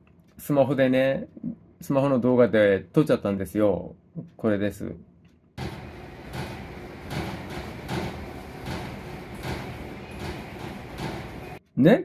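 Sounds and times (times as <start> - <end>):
background noise: 0.0 - 5.6, 10.9 - 12.0
treadmill thudding: 5.6 - 11.6.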